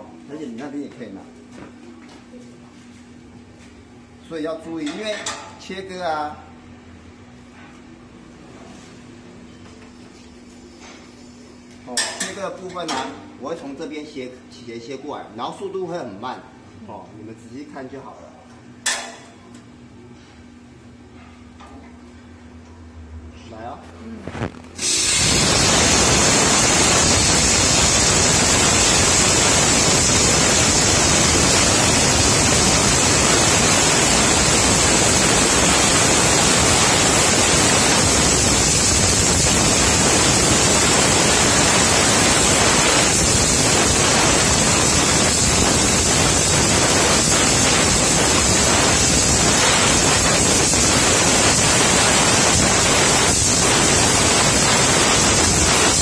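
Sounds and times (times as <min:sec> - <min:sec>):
plasma cutter hissing: 0:24.8 - 0:56.0.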